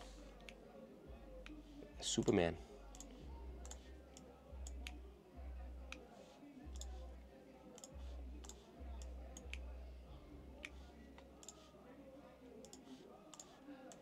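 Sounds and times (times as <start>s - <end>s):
faint bass beat music: 0.0s - 11.9s
computer mouse clicks: 2.9s - 5.0s, 6.7s - 7.0s, 7.7s - 9.7s, 10.6s - 11.6s, 12.6s - 14.0s.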